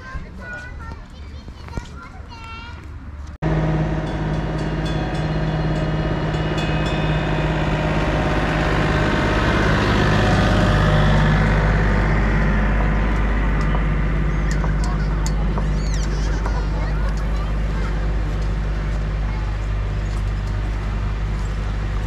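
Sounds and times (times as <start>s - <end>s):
scooter engine running: 3.4s - 20.2s.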